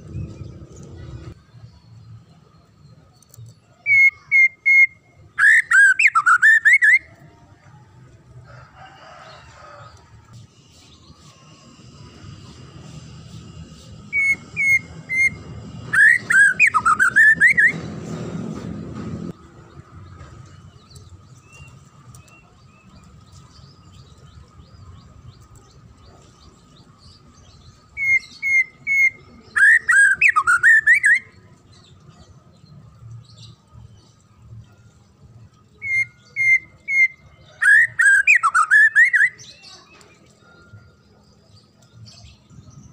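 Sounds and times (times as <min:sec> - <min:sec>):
songbird whistling song: 0:00.0 - 0:07.3, 0:12.9 - 0:18.1, 0:20.1 - 0:32.8, 0:35.6 - 0:42.9.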